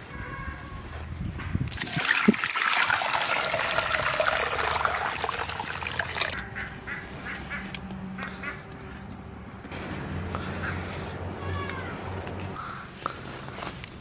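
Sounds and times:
water pouring into a metal pan: 1.7 - 6.4.

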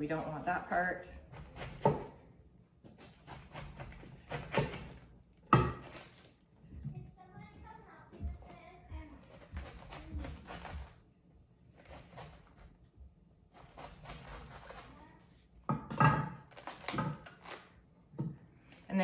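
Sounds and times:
knife cutting cabbage: 0.0 - 2.2, 2.8 - 6.4, 9.1 - 11.0, 11.7 - 12.9, 13.5 - 15.2, 16.3 - 19.0.

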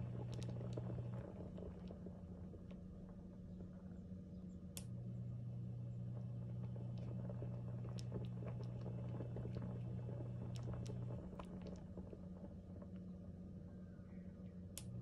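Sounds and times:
steady low hum: 0.0 - 15.0
curry sauce bubbling: 6.2 - 12.9.

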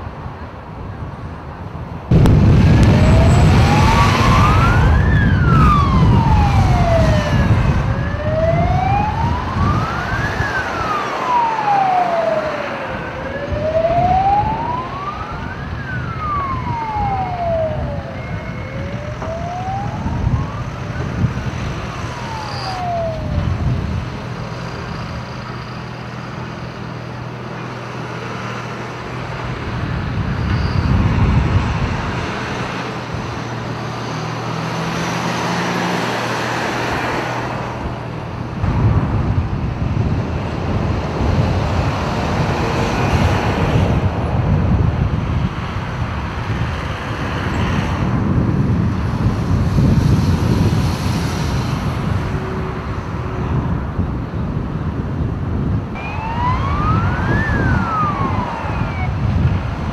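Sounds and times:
low rumble: 2.1 - 10.0, 38.4 - 41.8
fire engine siren wailing: 2.1 - 59.9.

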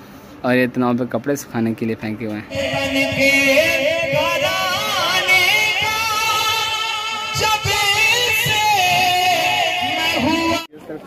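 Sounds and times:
person chanting through a loudspeaker: 2.5 - 10.7.

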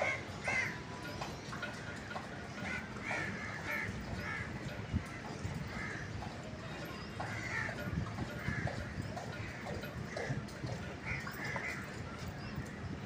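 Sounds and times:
crows cawing: 0.0 - 0.8, 2.6 - 6.2, 11.0 - 12.0.

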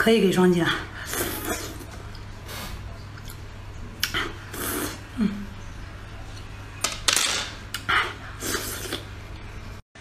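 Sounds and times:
person slurping: 1.0 - 3.4, 4.0 - 5.1, 7.8 - 9.1
person chewing: 1.1 - 5.0, 7.7 - 9.1.

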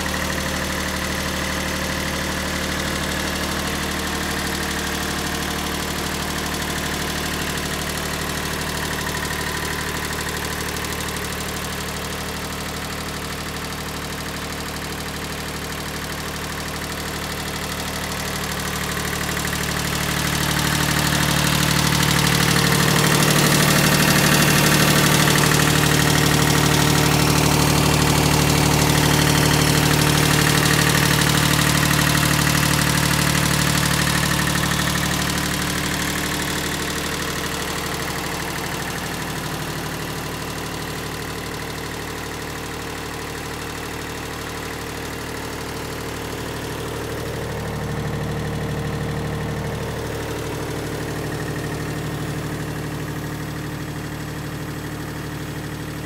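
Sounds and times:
tractor diesel engine idling: 0.0 - 56.0.

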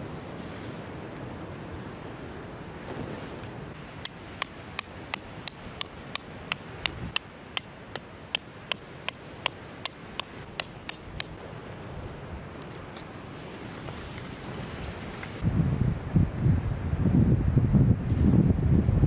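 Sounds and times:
hammer striking metal tent peg: 4.0 - 11.4.

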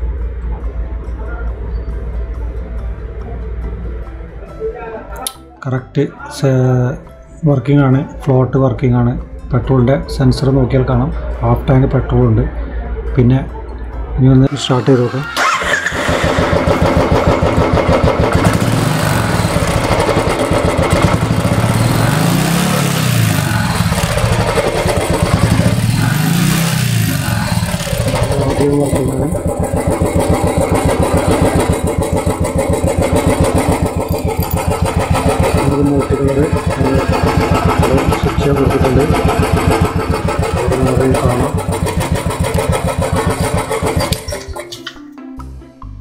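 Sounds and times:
motorcycle engine idling and revving: 15.3 - 44.6.

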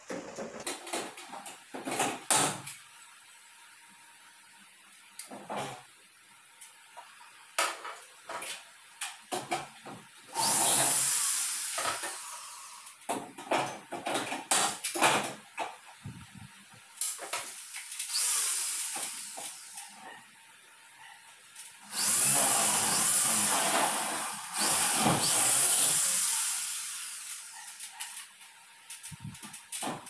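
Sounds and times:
electric drill into aluminum: 10.3 - 12.8, 17.0 - 19.9, 21.7 - 28.1.

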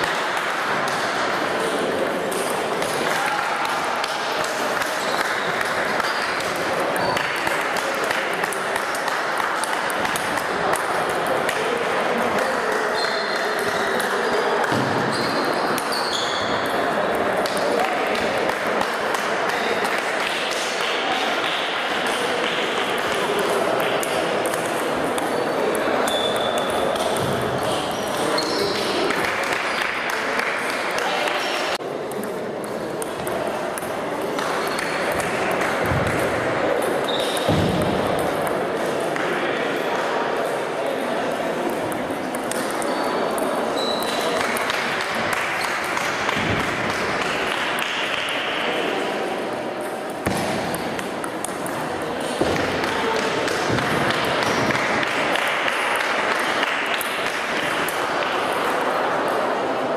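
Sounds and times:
table tennis balls clicking: 23.8 - 29.9.

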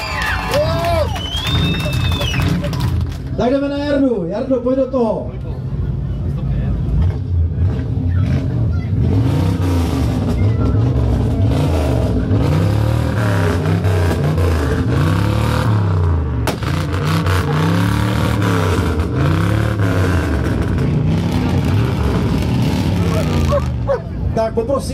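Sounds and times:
car engine revving: 6.6 - 24.4.

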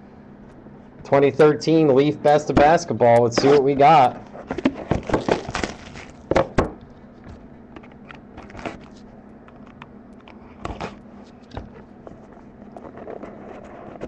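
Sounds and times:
cardboard clicks and rustles: 3.4 - 6.6, 7.3 - 9.0
knock on cardboard box: 6.3 - 6.8.

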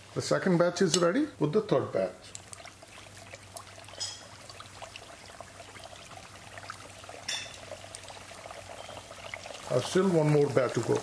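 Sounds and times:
hot oil sizzling and crackling: 0.0 - 11.0
dough dropping into oil: 3.5 - 4.5, 7.2 - 8.1.

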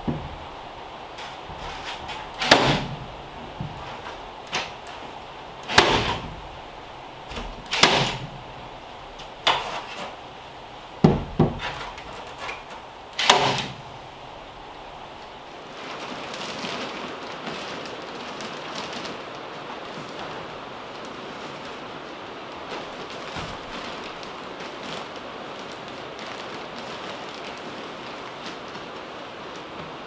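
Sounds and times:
staple gun firing: 7.7 - 8.2, 13.2 - 13.8.

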